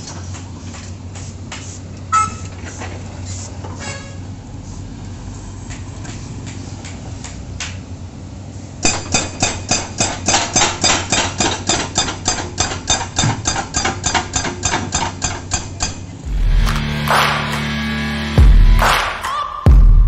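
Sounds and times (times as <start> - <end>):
hydraulic breaker hammering concrete: 8.8 - 17.8
low engine rumble: 16.2 - 20.0.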